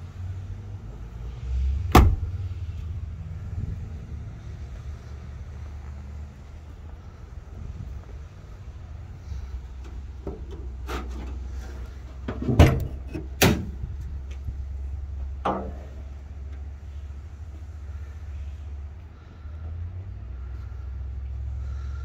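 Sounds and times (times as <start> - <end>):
steady low rumble: 0.0 - 22.0
car hood clunks: 1.9 - 2.3, 12.3 - 13.8.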